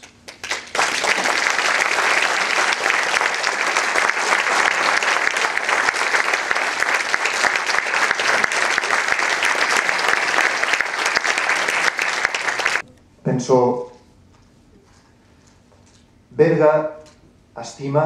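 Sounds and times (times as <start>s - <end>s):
audience applauding: 0.0s - 12.8s.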